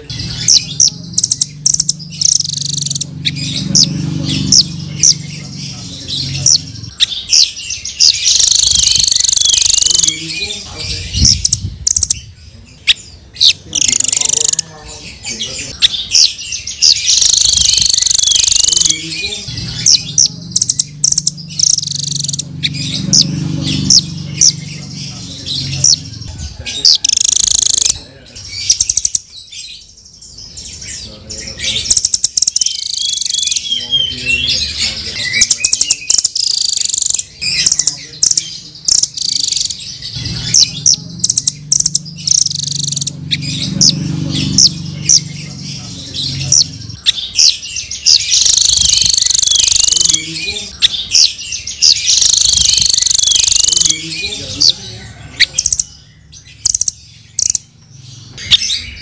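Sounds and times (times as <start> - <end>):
bird chirping and trilling: 0.0 - 59.0.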